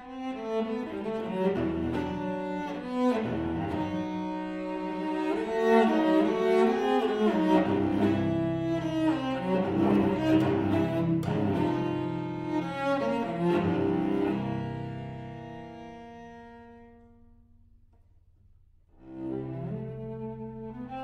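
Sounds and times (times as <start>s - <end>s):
bowed cello melody: 0.0s - 18.1s, 18.9s - 21.0s.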